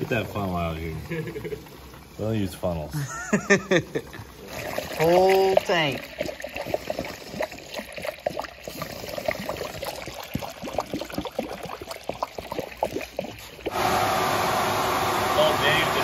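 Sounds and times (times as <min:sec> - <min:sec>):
fuel gurgling into tank: 0:00.0 - 0:16.0
steady mechanical hum: 0:13.7 - 0:16.0.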